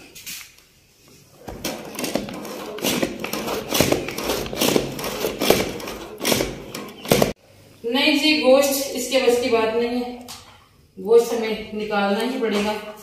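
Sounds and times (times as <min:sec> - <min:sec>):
plastic food chopper clacking: 0:01.5 - 0:07.4.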